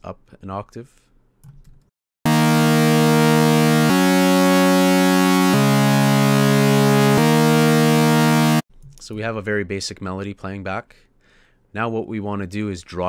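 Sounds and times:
synthesizer chords: 2.2 - 8.6.

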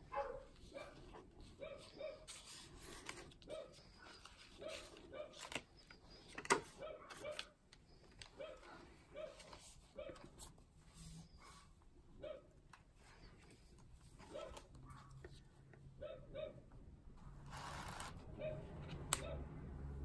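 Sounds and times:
card pages rustling and clicking: 0.6 - 10.6, 12.8 - 15.8, 17.5 - 19.2.

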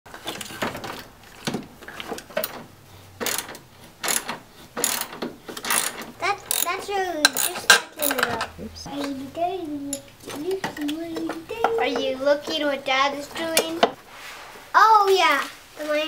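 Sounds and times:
ratchet wrench clicking: 3.2 - 8.3.

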